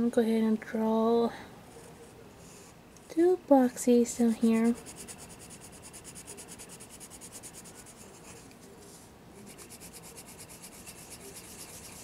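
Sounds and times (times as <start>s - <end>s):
colored pencil scratching on paper: 4.4s - 12.0s.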